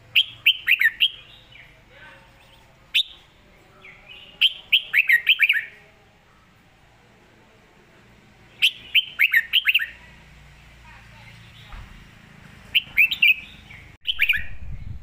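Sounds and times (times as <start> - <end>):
bird singing falling notes: 12.7 - 14.6.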